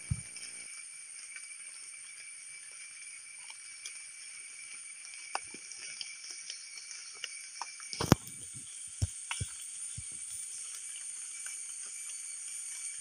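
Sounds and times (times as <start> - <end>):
insect chorus whining: 0.0 - 13.0
mushrooms pulled from soil: 8.0 - 8.7.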